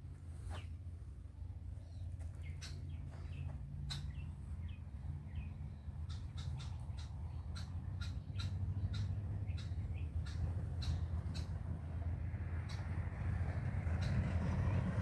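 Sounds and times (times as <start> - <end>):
low steady rumble: 0.0 - 15.0
small birds chirping: 0.3 - 0.8, 1.4 - 12.0.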